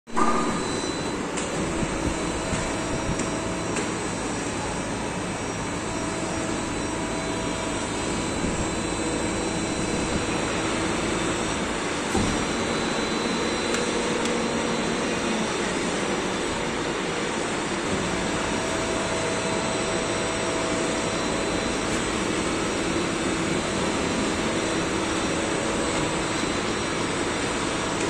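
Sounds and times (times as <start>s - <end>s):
injection moulding machine hum: 0.1s - 28.0s.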